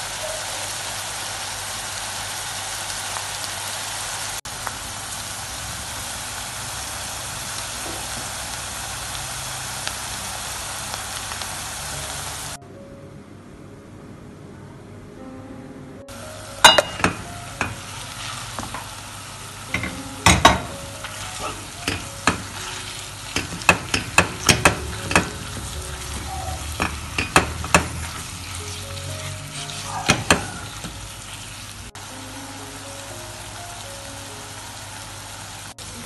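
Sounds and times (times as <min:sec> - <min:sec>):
meat sizzling in a frying pan: 0:00.0 - 0:12.6, 0:16.1 - 0:36.0
spatula knocking and scraping pan: 0:19.7 - 0:28.3.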